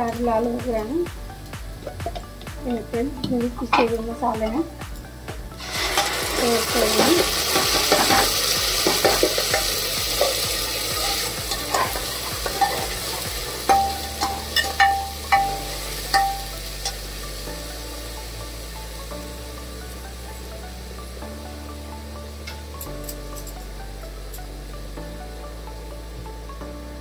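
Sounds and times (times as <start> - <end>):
paste sizzling in hot oil: 4.2 - 26.6
spatula clinking against cooker: 13.7 - 16.5.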